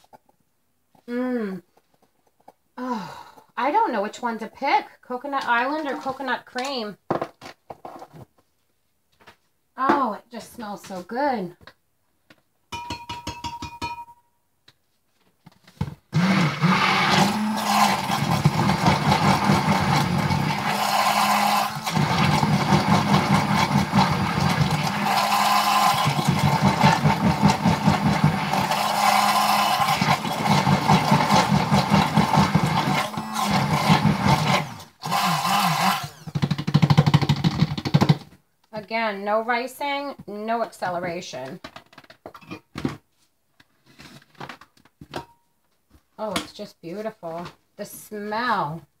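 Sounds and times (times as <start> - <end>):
stick blender humming: 16.1 - 38.2.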